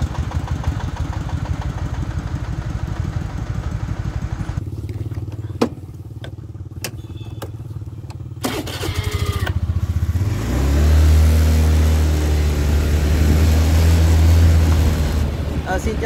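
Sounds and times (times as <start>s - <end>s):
small vehicle engine revving: 6.0s - 15.6s.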